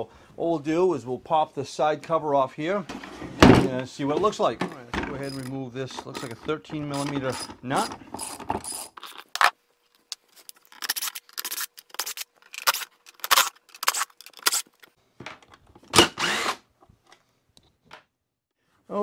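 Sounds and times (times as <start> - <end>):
clatter of tool and parts: 4.2 - 16.0
cordless impact driver bursts: 15.9 - 16.7.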